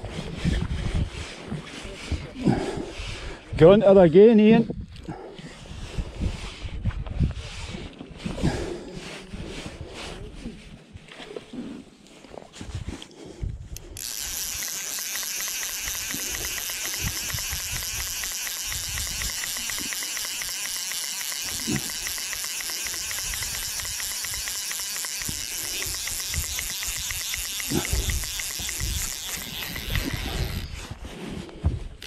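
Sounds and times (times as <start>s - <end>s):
fly reel ratchet buzzing: 13.8s - 31.0s.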